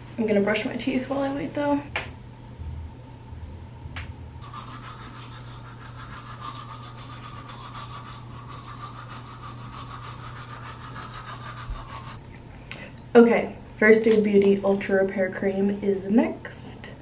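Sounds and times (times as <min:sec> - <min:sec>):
electric toothbrush buzzing: 0:04.4 - 0:12.2.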